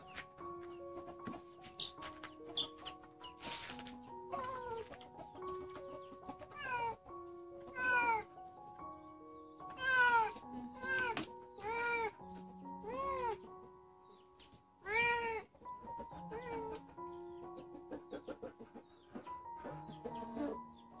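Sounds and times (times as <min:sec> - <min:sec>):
soft background music: 0:00.0 - 0:21.0
cat meowing: 0:04.4 - 0:04.8, 0:06.5 - 0:07.0, 0:07.7 - 0:08.3, 0:09.7 - 0:12.2, 0:12.8 - 0:13.4, 0:14.8 - 0:15.5, 0:16.3 - 0:16.8.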